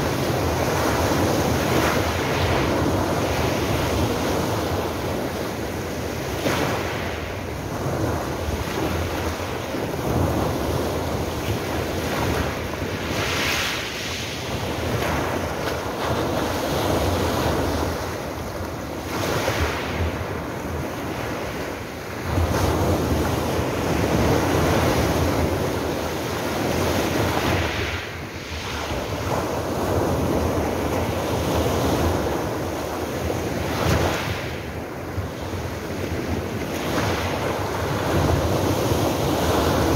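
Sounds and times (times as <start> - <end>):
wind rumble on microphone: 0.0 - 39.9.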